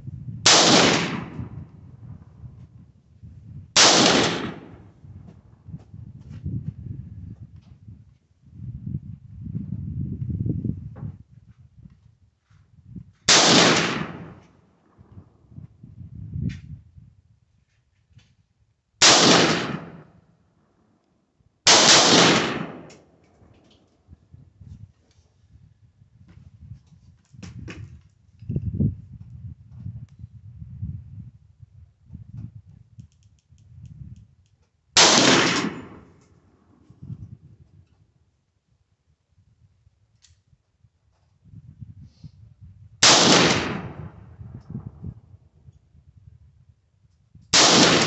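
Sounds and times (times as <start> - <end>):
rifle shots: 0.5 - 1.5, 3.8 - 4.9, 13.3 - 14.4, 19.0 - 20.2, 21.7 - 23.1, 35.0 - 36.2, 43.0 - 44.2, 47.5 - 48.0.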